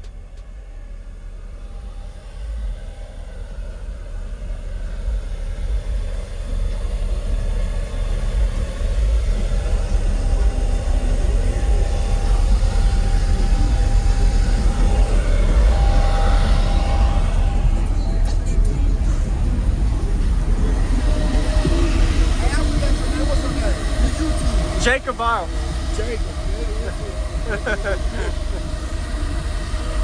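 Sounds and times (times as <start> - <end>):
deep bass rumble: 0.0 - 30.0.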